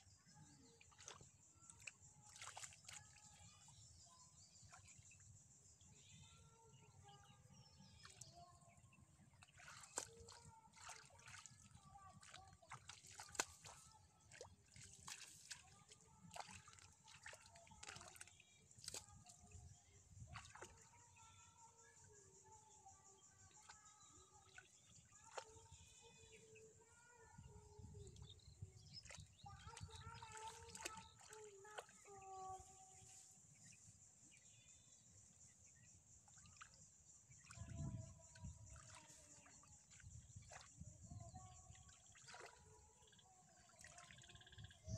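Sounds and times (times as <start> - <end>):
shallow water sloshing and splashing: 0.7 - 3.7, 9.2 - 19.6, 28.9 - 32.3, 37.5 - 44.8.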